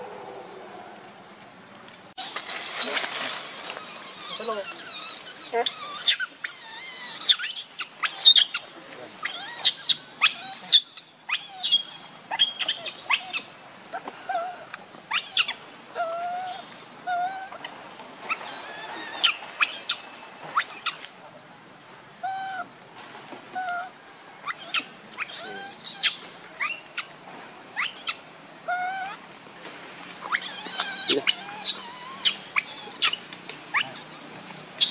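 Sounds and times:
high insect drone: 0.0 - 34.9
hooked chirping calls: 2.2 - 13.5, 30.3 - 34.9.

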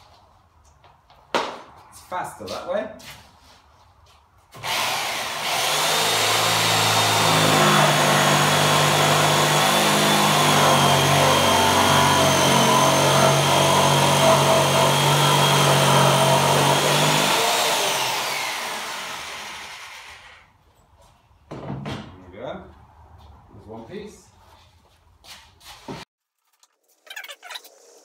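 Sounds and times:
jigsaw cutting wood: 4.6 - 20.5.

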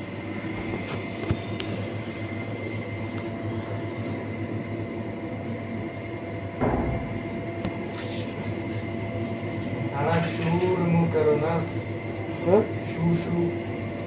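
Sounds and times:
air conditioning hum: 0.0 - 14.0
brief bump: 6.6 - 7.2.

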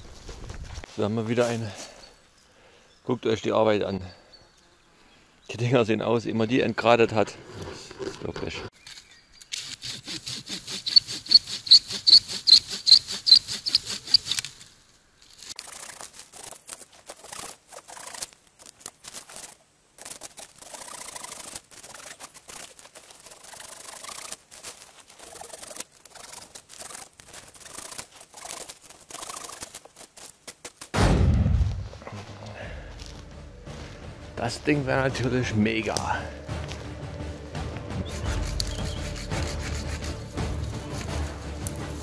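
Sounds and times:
wood and branches scraping: 6.7 - 31.0, 31.6 - 42.0
hand saw cutting wood: 9.5 - 14.6, 38.0 - 42.0.

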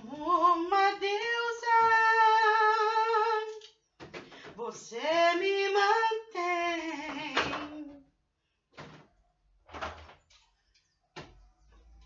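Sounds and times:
woman singing: 0.0 - 3.6, 4.4 - 8.1
items clattering in refrigerator: 4.0 - 4.7, 8.7 - 12.0.

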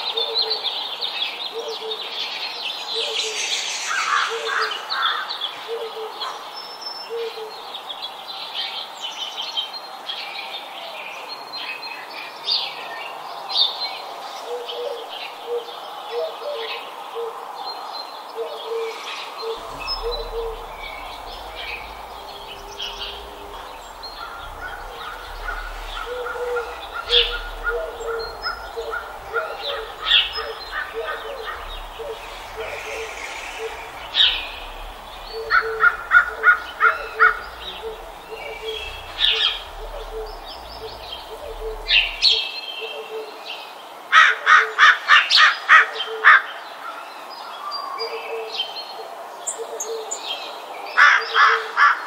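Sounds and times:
birds chirping and twittering: 0.0 - 10.4, 11.0 - 43.8
low repeated bird notes: 1.5 - 6.4, 18.4 - 43.0
low rumble: 19.3 - 42.4.

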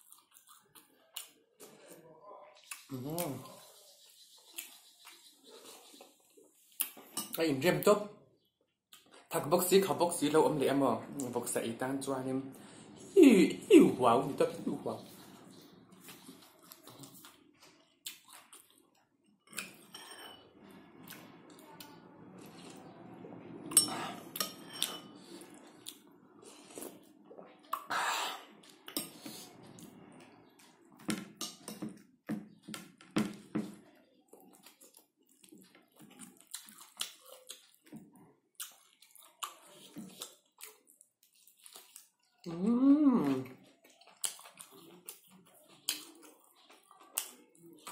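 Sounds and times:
chewing and lip smacking: 0.0 - 1.9, 2.6 - 7.2, 15.3 - 19.9, 34.3 - 42.5, 43.3 - 47.9
spoon clinking glass bowl: 19.8 - 20.4.

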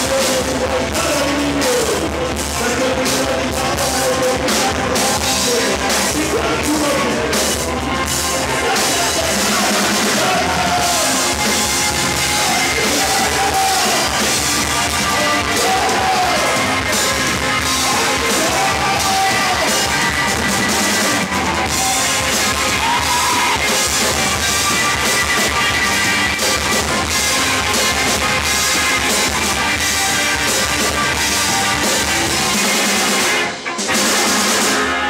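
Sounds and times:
person singing: 0.0 - 7.7, 8.3 - 21.2
bass guitar: 0.0 - 35.0
drum kit: 0.0 - 35.0
electric guitar: 0.0 - 35.0.

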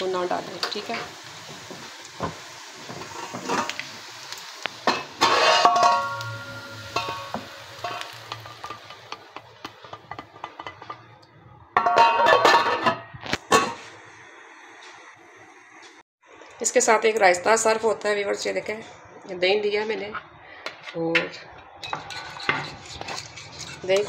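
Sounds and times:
frying pan and spoon clattering: 4.8 - 13.8, 21.8 - 24.0
steel lid clinking on pot: 4.9 - 8.9, 11.8 - 13.0.

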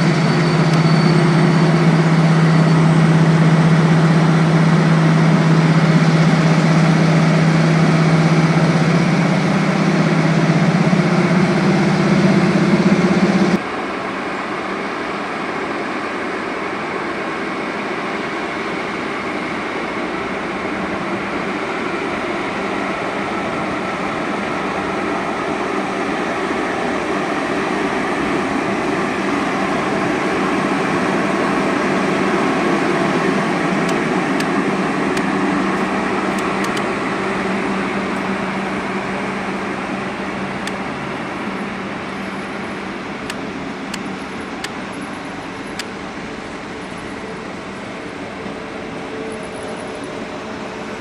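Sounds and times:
electric locomotive hum: 0.0 - 51.0
wheels rumbling on rails: 0.0 - 51.0
sharp clicks: 36.3 - 36.9, 43.2 - 44.8.

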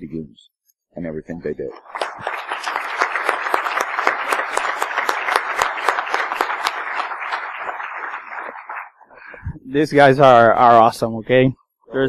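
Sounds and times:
audience applauding: 1.7 - 9.4.

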